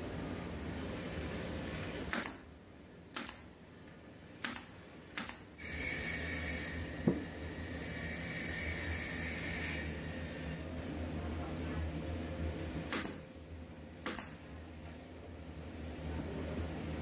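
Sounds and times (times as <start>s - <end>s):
steady background hum: 0.0s - 17.0s
nail gun firing into wood: 3.1s - 3.4s, 4.4s - 5.4s, 12.9s - 13.2s, 14.0s - 14.4s
knock: 7.0s - 7.2s.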